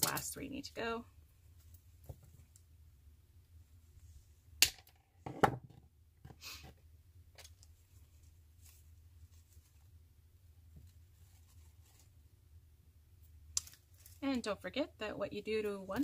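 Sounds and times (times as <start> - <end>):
plastic stems rustling: 0.0 - 0.5, 13.5 - 14.3.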